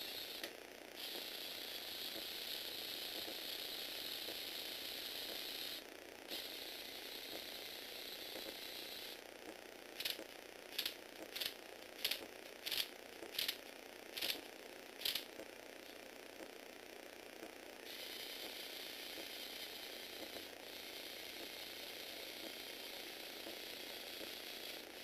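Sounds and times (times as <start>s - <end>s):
toy motors whirring: 0.0s - 9.2s, 10.0s - 15.3s, 17.8s - 25.0s
sharp ratcheting clicks: 10.0s - 14.4s, 15.0s - 15.3s.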